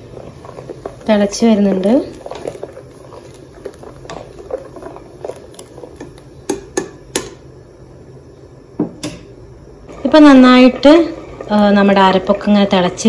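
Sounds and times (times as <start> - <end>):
ladle stirring thick curry: 0.0 - 6.8
ladle tapping steel pot: 6.0 - 7.4.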